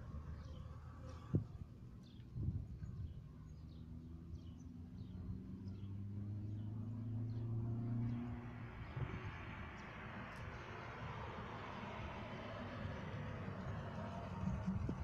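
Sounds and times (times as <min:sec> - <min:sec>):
vehicle engine hum: 0:00.0 - 0:15.0
small birds chirping: 0:00.3 - 0:10.6.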